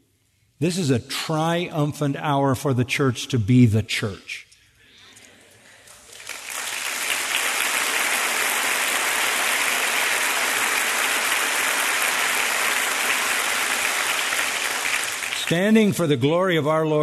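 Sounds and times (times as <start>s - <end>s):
congregation applauding: 5.8s - 16.0s.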